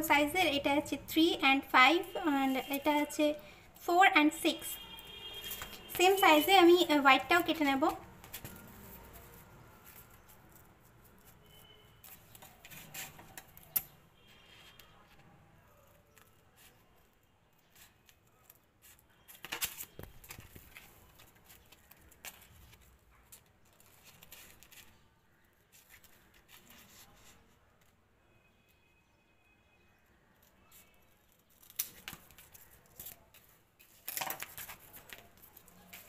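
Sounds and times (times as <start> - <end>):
paper crackling: 1.8 - 4.6, 17.7 - 25.0, 30.7 - 36.0.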